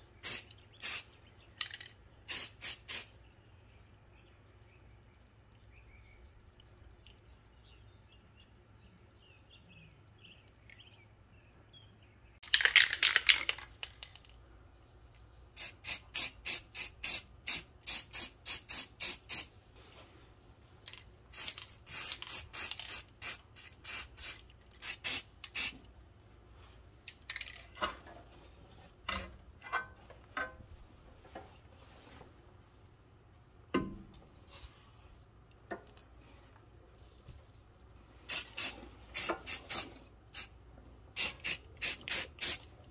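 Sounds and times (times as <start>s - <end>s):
spray can rattling: 0.2s - 3.1s, 12.4s - 14.4s, 15.6s - 19.5s, 20.8s - 25.9s, 27.1s - 27.8s, 38.3s - 40.5s, 41.1s - 42.7s
aerosol spray hiss: 2.3s - 3.1s, 21.4s - 25.8s, 38.3s - 40.5s, 41.2s - 42.6s.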